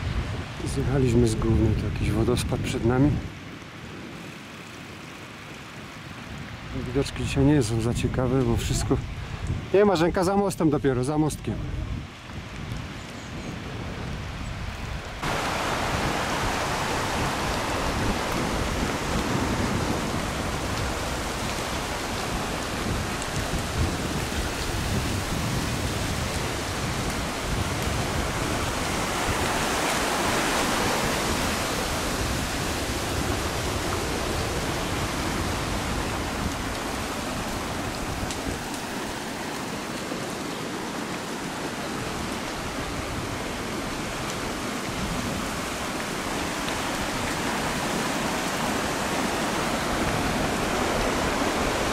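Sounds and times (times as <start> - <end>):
wind buffeting microphone: 0.0 - 51.9
bicycle tyres on gravel: 3.3 - 6.6, 11.9 - 51.9
rushing river water: 15.0 - 51.9.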